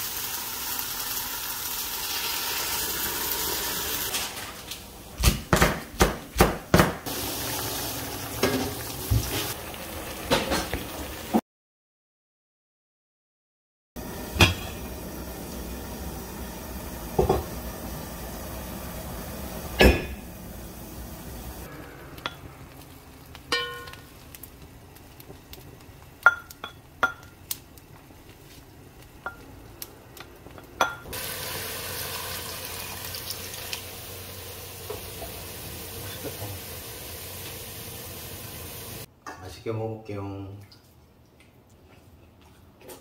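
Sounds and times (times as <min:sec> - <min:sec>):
water sizzling in hot pot: 0:00.0 - 0:04.2, 0:07.0 - 0:11.4, 0:14.0 - 0:39.1.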